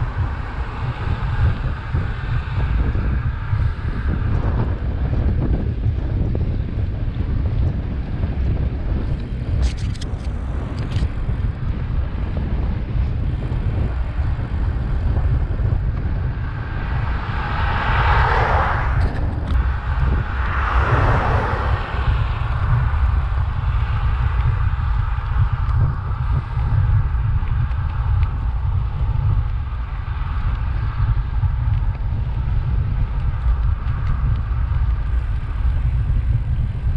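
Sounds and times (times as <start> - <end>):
cars passing: 0.0 - 4.9, 10.4 - 26.8
wind on the microphone: 0.0 - 36.9.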